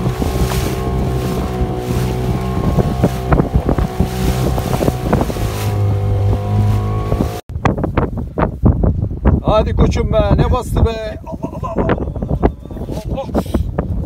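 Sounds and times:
boat motor running: 0.0s - 7.4s
hull knocking and splashing: 0.0s - 8.0s
wind buffeting microphone: 0.0s - 14.0s.

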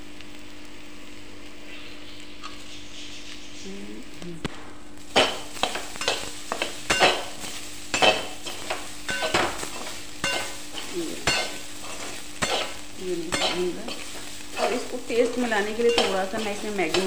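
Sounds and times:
light frying sizzle: 0.0s - 17.0s
metal spatula scraping a pan: 5.2s - 17.0s.

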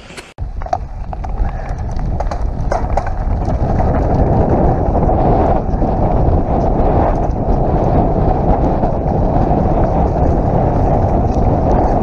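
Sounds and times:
wind buffeting microphone: 0.0s - 12.0s
bike tyres clattering over stones: 0.4s - 12.0s.

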